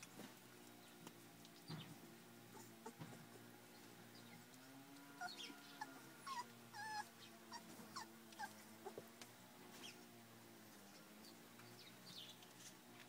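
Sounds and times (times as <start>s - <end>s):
puppies whimpering: 2.5s - 3.4s, 4.2s - 9.1s.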